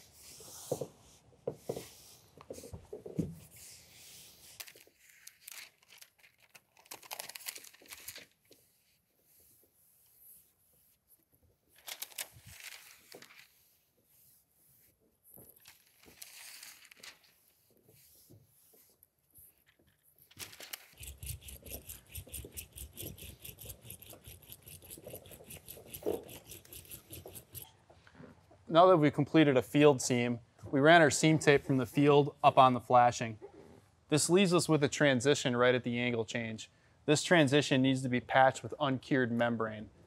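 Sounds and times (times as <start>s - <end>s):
plastic liner crinkling: 4.6s - 8.6s, 11.7s - 13.5s, 15.5s - 17.4s, 19.6s - 21.2s.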